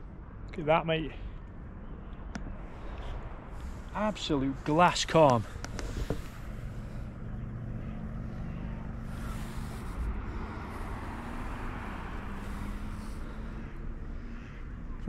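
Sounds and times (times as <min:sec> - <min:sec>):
distant engine hum: 0:00.0 - 0:15.0
wind: 0:00.0 - 0:15.0
water noise: 0:07.8 - 0:14.0.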